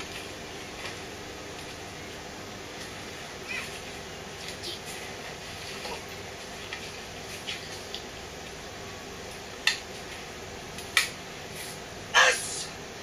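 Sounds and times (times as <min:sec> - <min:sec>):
steady hiss: 0:00.0 - 0:13.0
sharp snaps: 0:09.6 - 0:09.9, 0:10.7 - 0:11.2.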